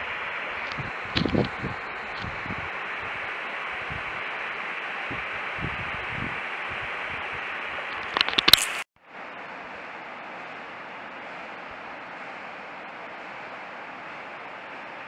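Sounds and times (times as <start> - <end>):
steady hiss: 0.0 - 8.8.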